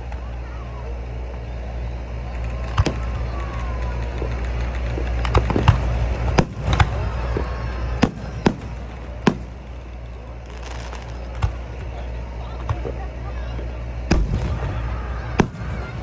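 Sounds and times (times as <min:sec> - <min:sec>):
firework shells bursting: 0:04.0 - 0:11.8.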